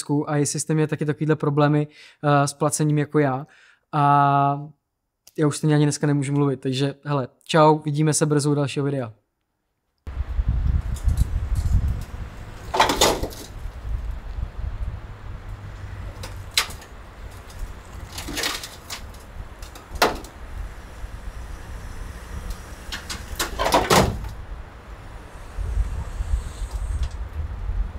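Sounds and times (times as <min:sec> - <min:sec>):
low steady rumble: 0:10.1 - 0:27.9.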